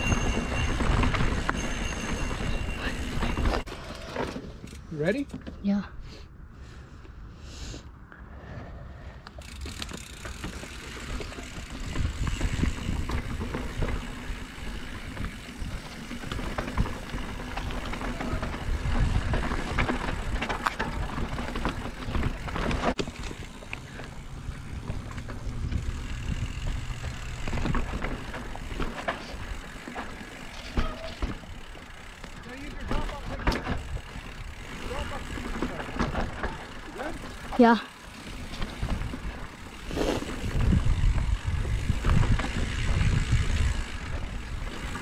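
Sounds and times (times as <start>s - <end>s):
tyres on loose dirt: 0.0s - 5.6s, 9.2s - 45.0s
bike rattling over bumps: 0.0s - 5.7s, 9.4s - 45.0s
wind rumbling on microphone: 11.7s - 22.9s, 24.2s - 28.6s, 38.5s - 45.0s.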